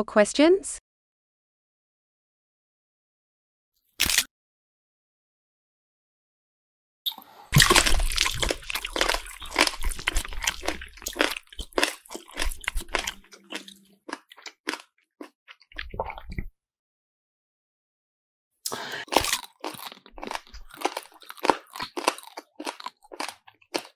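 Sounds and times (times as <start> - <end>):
crunching and chewing: 7.6 - 16.5, 18.7 - 23.9.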